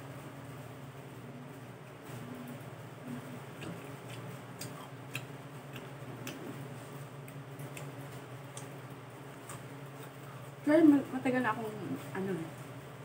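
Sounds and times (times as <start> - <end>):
steady low hum: 0.0 - 13.0
sharp eating clicks: 3.5 - 10.2.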